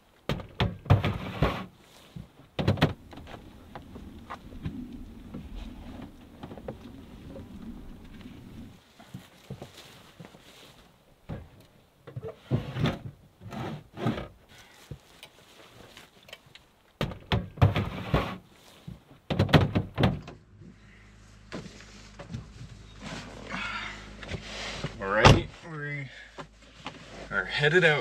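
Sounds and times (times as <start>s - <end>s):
plastic bins knocking and clattering: 0.3s - 1.7s, 2.6s - 3.3s, 17.0s - 18.4s, 19.3s - 20.4s.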